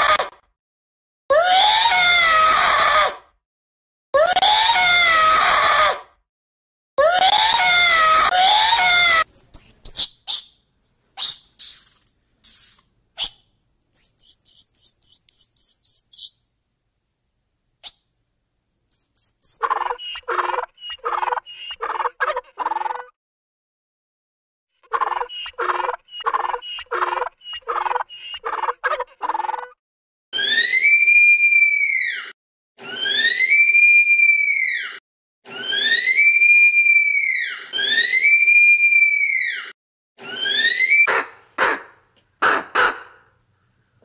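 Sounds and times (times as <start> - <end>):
rapid high chirps: 9.3 - 10.6, 11.2 - 12.8, 14.0 - 16.4, 18.9 - 19.6.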